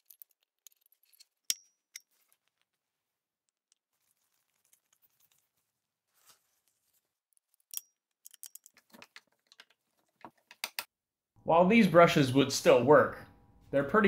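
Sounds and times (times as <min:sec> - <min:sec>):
small clicks of handled parts: 0:00.0 - 0:02.8, 0:07.4 - 0:10.9.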